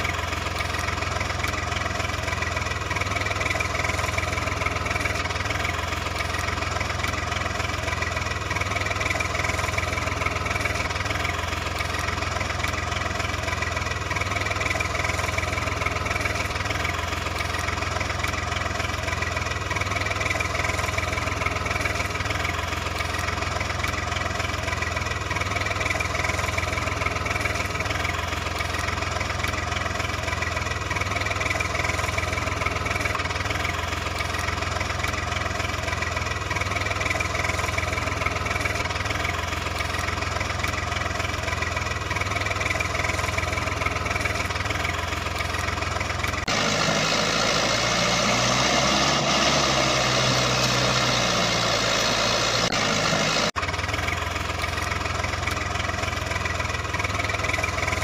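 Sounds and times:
tractor engine idling: 0:00.0 - 0:58.0
engine rising and falling in pitch: 0:46.2 - 0:55.3.

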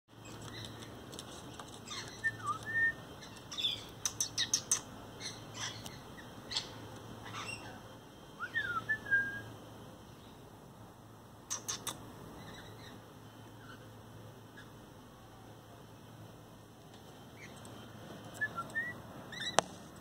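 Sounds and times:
parrot chirping: 0:01.8 - 0:07.8, 0:11.5 - 0:13.9, 0:18.4 - 0:19.6
bird whistled notes: 0:01.9 - 0:05.8, 0:08.4 - 0:09.5, 0:18.4 - 0:19.6.

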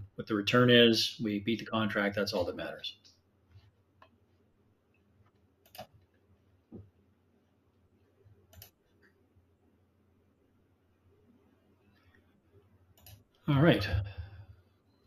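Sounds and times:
computer mouse clicks: 0:05.3 - 0:06.1, 0:08.5 - 0:09.2, 0:13.0 - 0:13.3.

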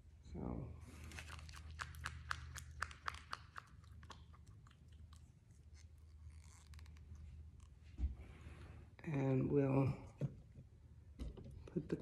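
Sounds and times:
spoon squishing wet paper pulp: 0:01.0 - 0:07.8.

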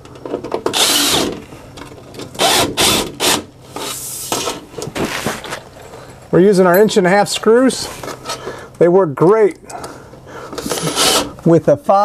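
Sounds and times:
cordless drill driving screws: 0:00.7 - 0:01.3, 0:02.4 - 0:03.5, 0:10.6 - 0:11.4.

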